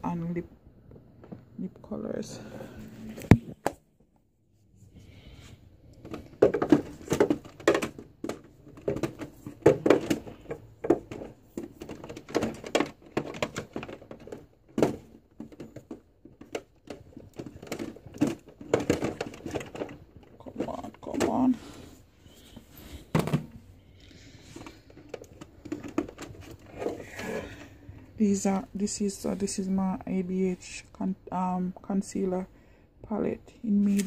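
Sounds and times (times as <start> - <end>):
makeup items clicking and knocking: 5.9 - 28.0.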